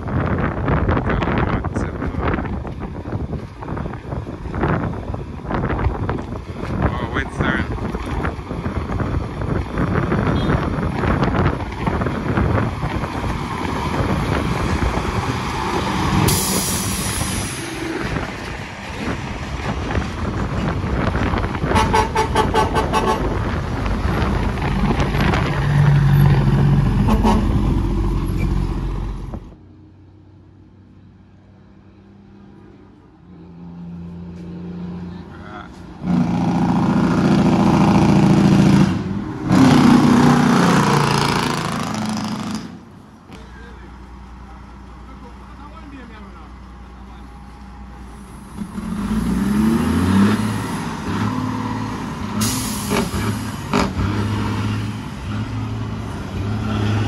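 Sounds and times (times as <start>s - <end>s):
truck engine and road noise: 0.0s - 57.0s
truck horn toots: 10.3s - 10.7s, 21.6s - 23.4s, 27.0s - 27.6s.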